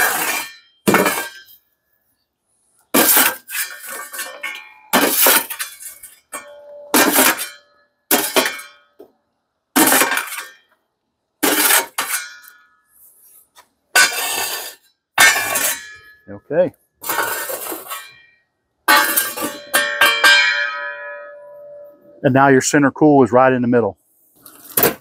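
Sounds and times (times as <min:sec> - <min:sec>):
shovel scraping charcoal on steel: 0:00.0 - 0:01.7, 0:02.8 - 0:08.8, 0:09.8 - 0:10.7, 0:11.4 - 0:16.1, 0:17.0 - 0:18.3, 0:18.9 - 0:19.9
metal ringing: 0:03.0 - 0:09.0, 0:13.9 - 0:16.4, 0:17.1 - 0:22.2.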